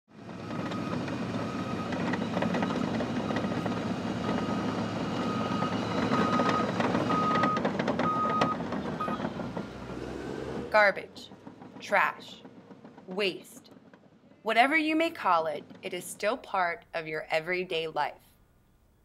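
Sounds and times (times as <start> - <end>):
engine rumble: 0.1 - 16.9
truck reversing alarm beeping: 0.2 - 10.5.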